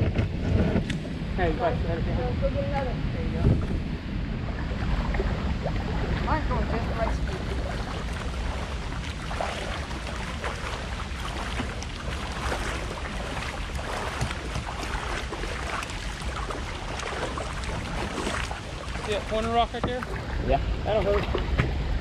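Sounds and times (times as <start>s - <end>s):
water around moving kayaks: 0.0s - 22.0s
wind buffeting microphone: 0.0s - 22.0s
short splashes: 4.6s - 21.6s.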